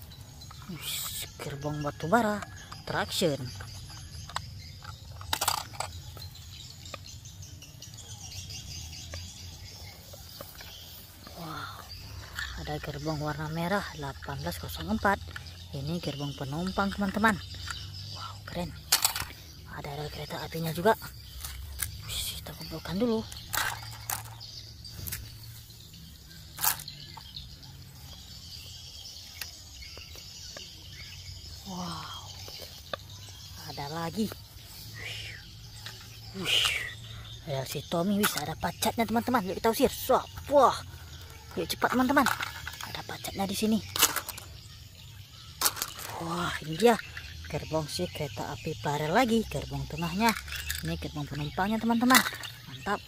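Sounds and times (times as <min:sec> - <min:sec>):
insects buzzing: 0:00.0 - 0:53.0
plastic toy handling clicks: 0:03.5 - 0:07.2, 0:18.8 - 0:19.6, 0:23.3 - 0:24.4, 0:26.5 - 0:27.0, 0:41.9 - 0:43.0, 0:43.8 - 0:44.6, 0:45.6 - 0:46.1, 0:52.1 - 0:52.6.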